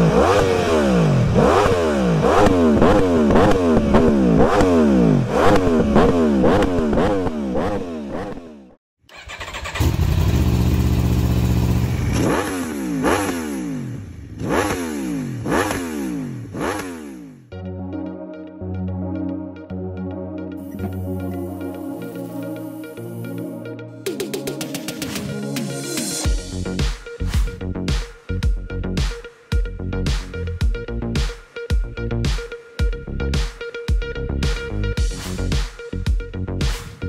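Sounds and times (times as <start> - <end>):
motorcycle engine revving: 0.0 - 17.5
motorcycle engine idling: 9.2 - 12.2.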